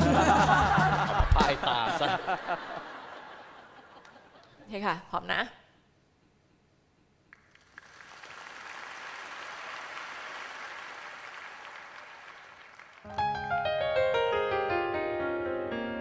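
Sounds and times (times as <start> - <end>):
audience applause: 7.3 - 13.2
piano playing: 13.1 - 16.0.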